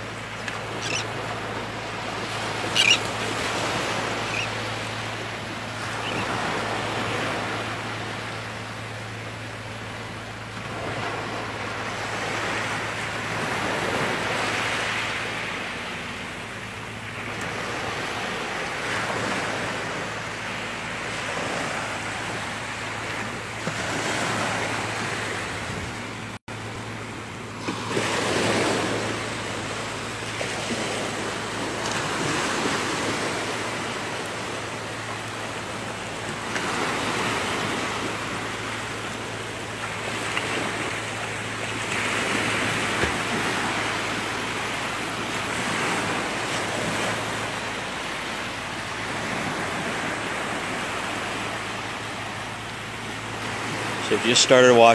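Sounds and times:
small waves breaking on sand: 0:00.0 - 0:54.9.

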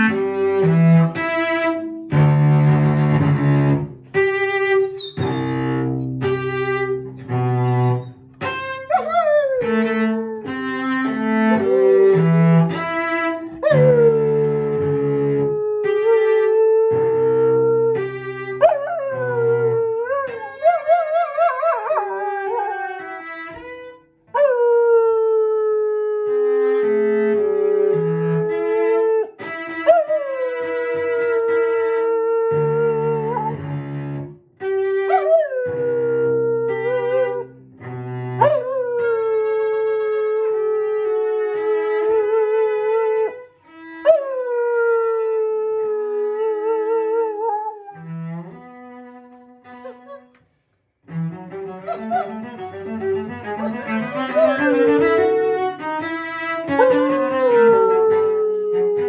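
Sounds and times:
cello notes: 0:00.0 - 0:59.0
dog howling: 0:08.8 - 0:09.9, 0:13.5 - 0:23.2, 0:24.4 - 0:26.6, 0:27.6 - 0:33.6, 0:35.1 - 0:37.5, 0:38.4 - 0:39.6, 0:44.0 - 0:48.1, 0:49.8 - 0:50.3, 0:51.8 - 0:52.8, 0:53.6 - 0:55.6, 0:56.7 - 0:59.0.

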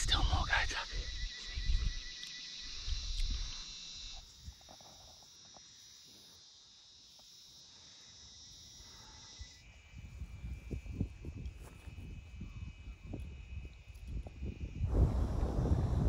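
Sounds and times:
insect chorus drone: 0:00.0 - 0:16.0
low rumble: 0:14.8 - 0:16.0.

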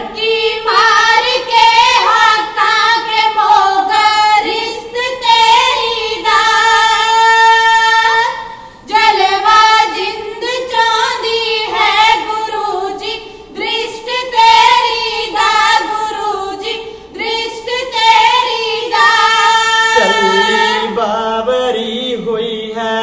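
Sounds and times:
women singing unaccompanied: 0:00.0 - 0:21.0
man's low voice: 0:20.0 - 0:21.0.

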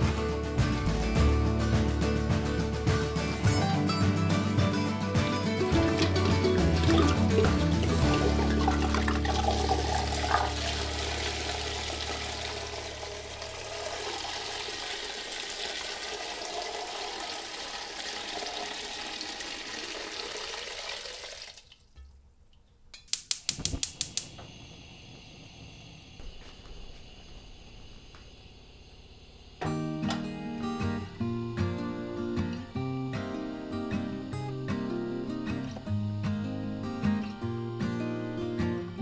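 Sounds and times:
tap water running into vessel: 0:05.7 - 0:21.9
sharp clicks: 0:23.0 - 0:24.4.

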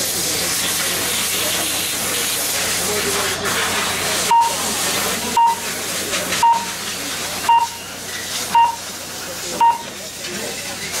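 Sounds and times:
short electronic beeps: 0:04.3 - 0:04.6, 0:05.3 - 0:05.7, 0:06.4 - 0:06.8, 0:07.4 - 0:07.9, 0:08.5 - 0:08.9, 0:09.6 - 0:09.9.

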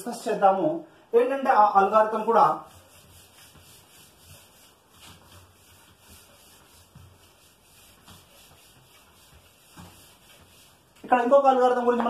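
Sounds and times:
eraser rubbing on whiteboard: 0:02.1 - 0:11.0.

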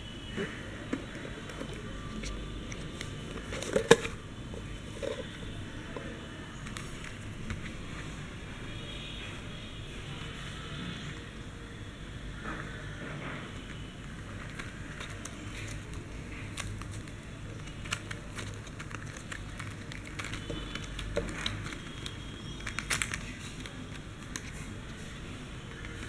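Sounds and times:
plastic packaging crinkling and clicking: 0:00.3 - 0:08.2, 0:13.3 - 0:26.0.

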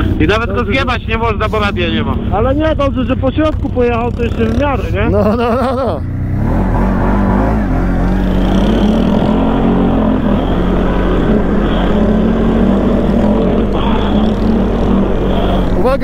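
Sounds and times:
quad bike engine running: 0:00.0 - 0:16.0
steady rush of noise: 0:07.4 - 0:16.0.

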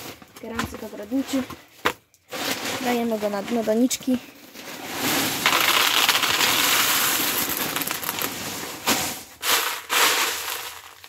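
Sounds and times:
clay pellets rattling into a pot: 0:04.6 - 0:11.0.

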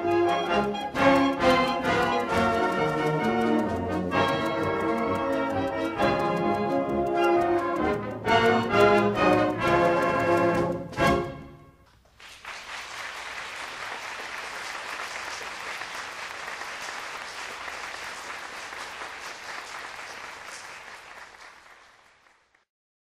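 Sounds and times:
audience applause: 0:12.1 - 0:22.6.

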